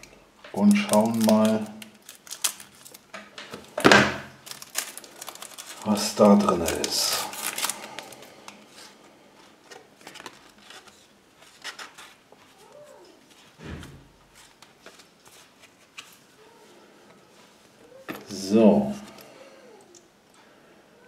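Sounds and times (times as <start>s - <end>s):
wrapper crackling and tearing: 0.6s - 9.0s, 9.6s - 13.0s.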